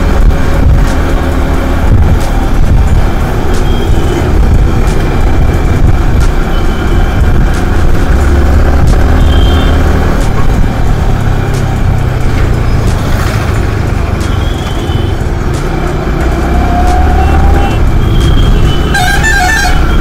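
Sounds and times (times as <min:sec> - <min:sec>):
wind rumble on microphone: 0:00.0 - 0:08.2
motorcycle engine running: 0:00.0 - 0:19.0.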